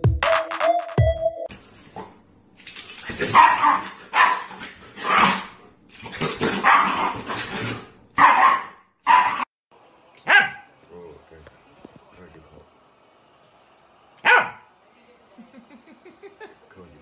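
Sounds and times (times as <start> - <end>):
dog barking and yapping: 3.0 - 9.5, 10.2 - 10.7, 14.2 - 14.7.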